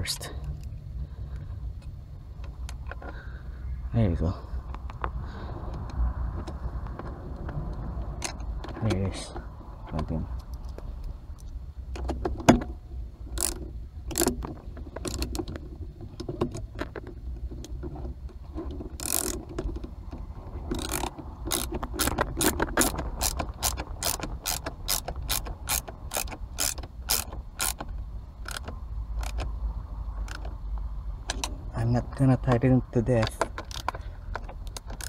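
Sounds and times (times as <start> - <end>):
ratcheting driver clicking: 10.3 - 29.5, 30.2 - 30.6, 33.2 - 35.0.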